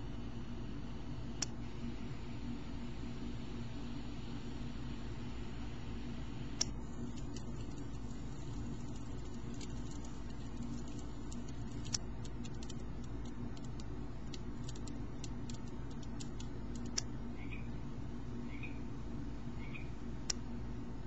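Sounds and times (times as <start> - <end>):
crackling fire sound effect: 6.6 - 17.0.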